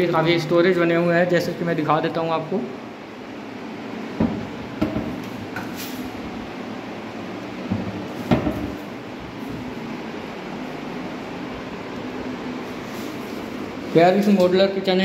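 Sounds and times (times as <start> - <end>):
steady background noise: 0.0 - 15.0
cabinet doors opening and shutting: 7.7 - 8.9.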